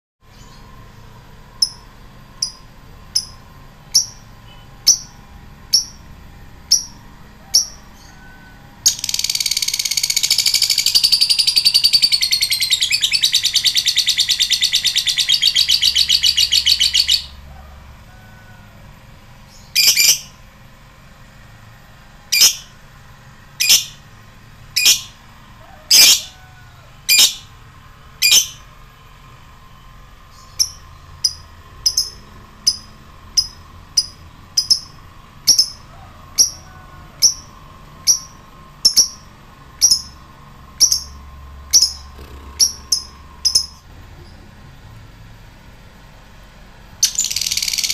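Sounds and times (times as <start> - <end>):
lovebird ticking and trilling: 1.6 - 6.0, 6.7 - 8.2, 8.8 - 17.3, 30.3 - 36.6, 37.2 - 40.2, 40.8 - 43.8, 47.0 - 47.9.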